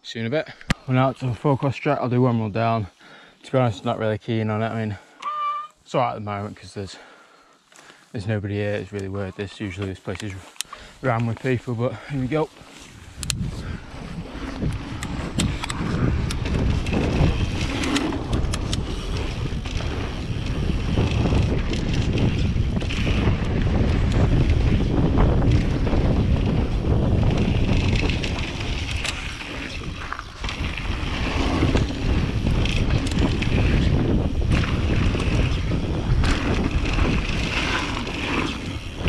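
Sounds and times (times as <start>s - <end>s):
bike tyres rumbling on dirt: 8.2s - 39.0s
bike clicks and rattles: 8.6s - 39.0s
wind buffeting microphone: 11.0s - 39.0s.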